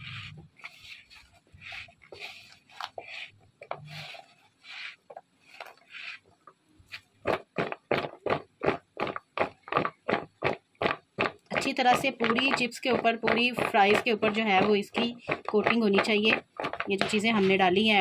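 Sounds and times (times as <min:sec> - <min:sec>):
hand rustling potatoes in flour: 0:00.0 - 0:18.0.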